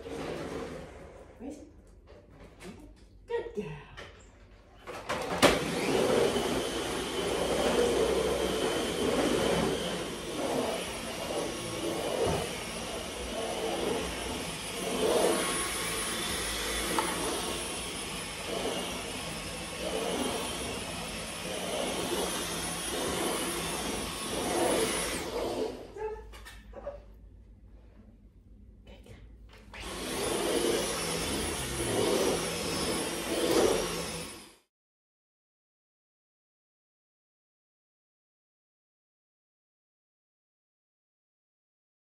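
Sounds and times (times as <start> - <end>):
stick vacuum cleaner running: 4.5 - 26.0, 29.6 - 34.7.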